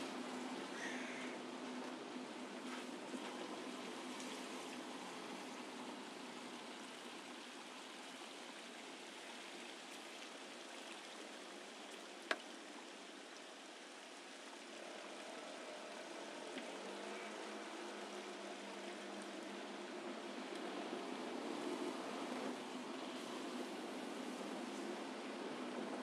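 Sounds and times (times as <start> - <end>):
road and traffic noise: 0.0 - 26.0.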